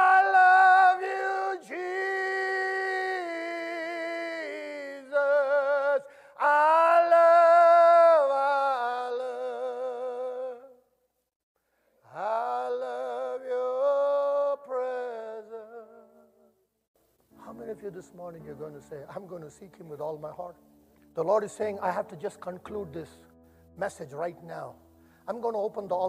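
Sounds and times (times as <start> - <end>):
person singing unaccompanied: 0.0 - 10.8.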